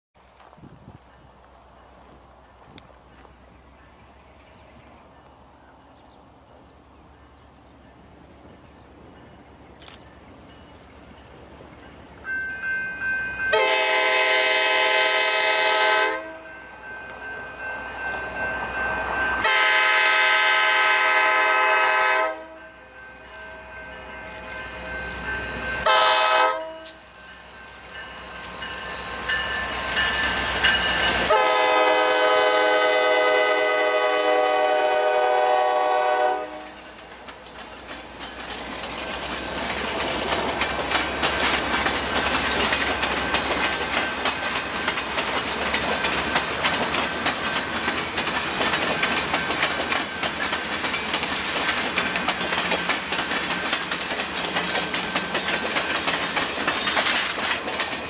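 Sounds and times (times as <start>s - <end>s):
locomotive air horn blasts: 13.5s - 16.6s, 19.4s - 22.8s, 25.8s - 27.0s, 31.3s - 36.8s
train wheels clicking over rail joints: 26.8s - 31.8s, 36.5s - 58.0s.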